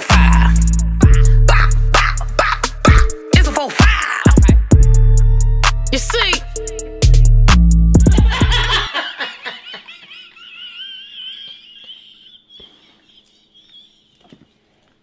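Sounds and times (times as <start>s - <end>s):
bass-heavy music: 0.0s - 8.9s.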